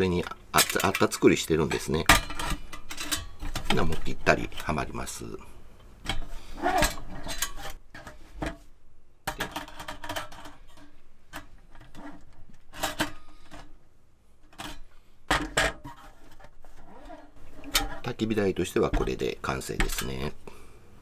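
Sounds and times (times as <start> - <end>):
metal parts clinking and scraping: 2.0 - 4.2, 6.1 - 8.2.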